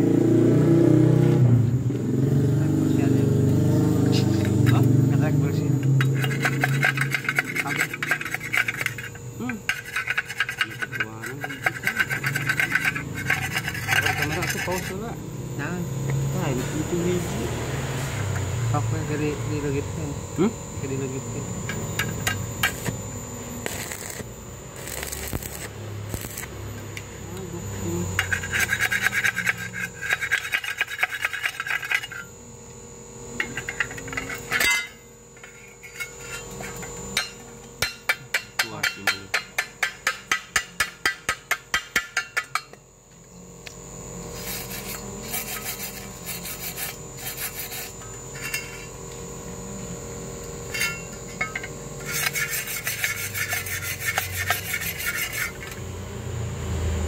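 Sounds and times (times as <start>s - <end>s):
wire brush scrubbing metal: 6.0s - 15.1s, 28.2s - 32.3s, 44.3s - 48.9s, 50.7s - 55.8s.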